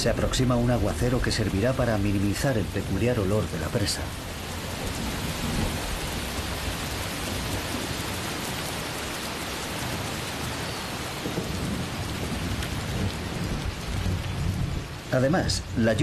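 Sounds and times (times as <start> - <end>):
heavy rain: 0.0 - 16.0.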